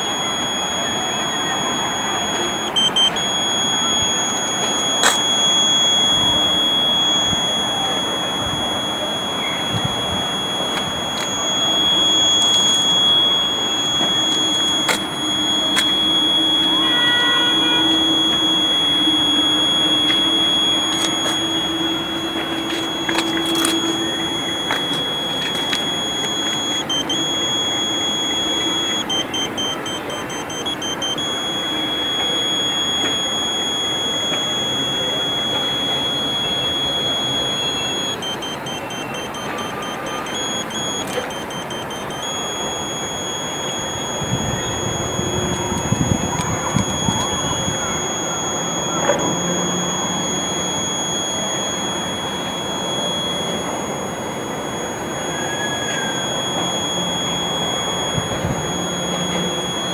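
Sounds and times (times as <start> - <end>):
high-pitched buzzer tone: 0.0 - 59.9.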